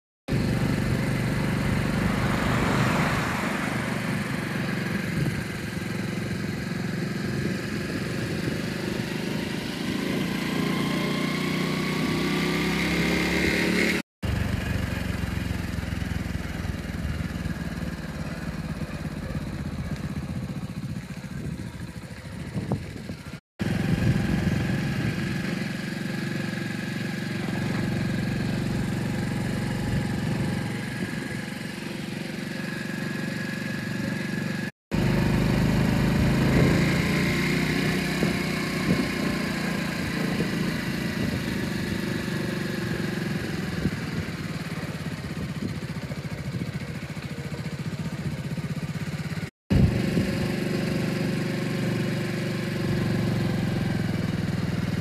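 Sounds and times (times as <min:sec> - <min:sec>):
vehicle engine running: 0:00.3 - 0:55.0
tyre and wind noise: 0:20.3 - 0:24.8, 0:38.0 - 0:39.4.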